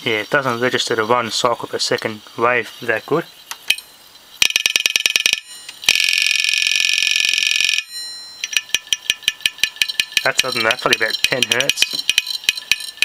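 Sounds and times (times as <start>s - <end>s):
hard drive actuator clicking: 8.4s - 13.0s.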